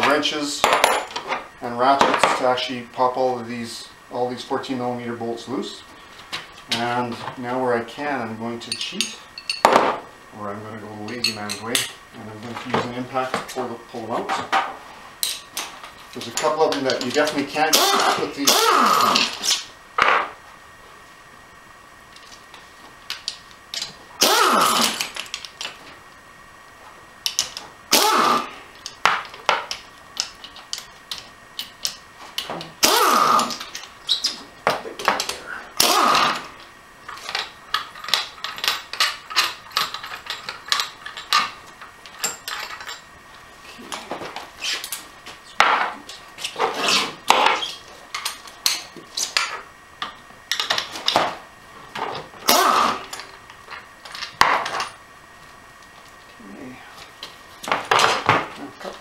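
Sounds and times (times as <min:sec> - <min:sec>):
impact wrench spinning: 0:17.7 - 0:19.7, 0:24.2 - 0:25.2, 0:27.9 - 0:28.5, 0:32.8 - 0:34.2, 0:35.8 - 0:36.5, 0:52.4 - 0:53.3.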